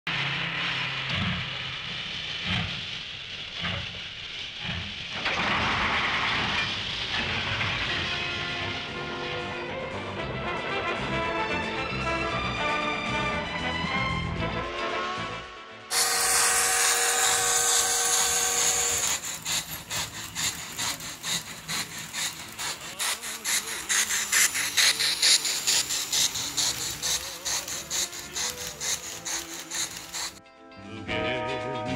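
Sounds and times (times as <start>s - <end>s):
rhythmic steam chuffing: 0.1s - 14.8s, 15.9s - 30.4s
steam whistle: 15.9s - 30.4s.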